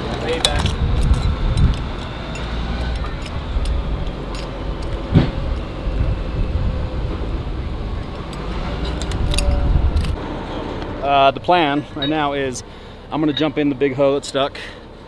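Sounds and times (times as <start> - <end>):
diesel engine idling: 0.0 - 15.0
sharp knock: 5.1 - 5.4.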